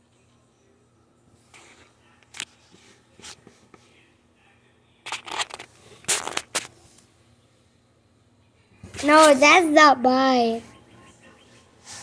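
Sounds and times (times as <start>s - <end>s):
phone handling scrapes and rustles: 5.1s - 6.8s.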